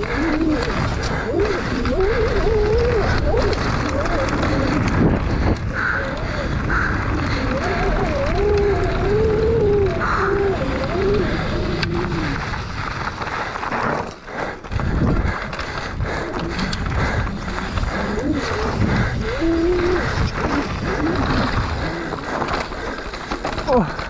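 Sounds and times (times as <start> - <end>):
bike rattling over bumps: 0.0 - 24.0
wind and tyre noise: 0.0 - 24.0.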